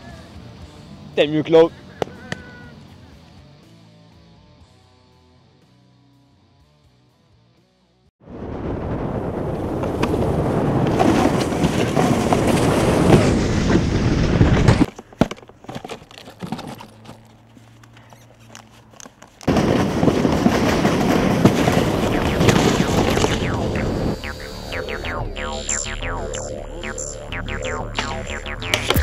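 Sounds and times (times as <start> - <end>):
snowboard scraping over snow: 9.3 - 14.9, 19.5 - 24.1.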